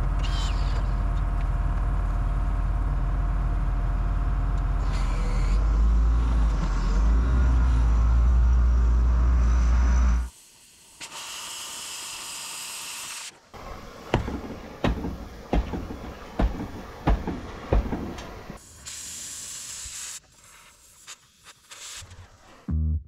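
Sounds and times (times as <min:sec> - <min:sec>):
cutting torch hissing: 0:09.2 - 0:22.7
sharp metal knocks: 0:13.7 - 0:18.6.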